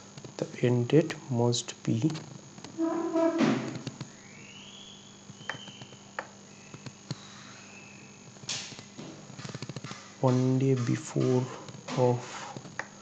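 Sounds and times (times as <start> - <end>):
person breathing: 11.5 - 12.7.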